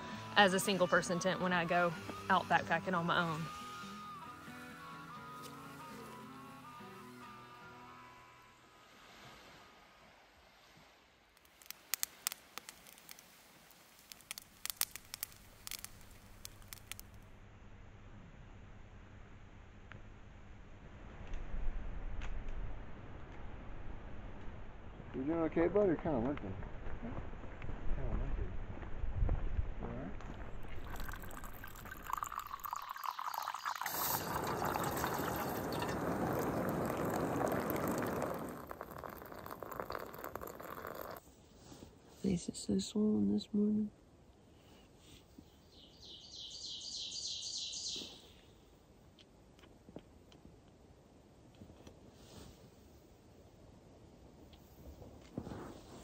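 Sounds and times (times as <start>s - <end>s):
campfire crackling: 10.0s - 17.4s, 21.0s - 42.1s, 47.4s - 56.0s
water trickling: 11.4s - 17.1s, 30.4s - 41.2s
fire popping: 11.4s - 17.3s, 22.1s - 41.3s, 53.5s - 56.0s
water pouring into a cup: 30.6s - 41.2s.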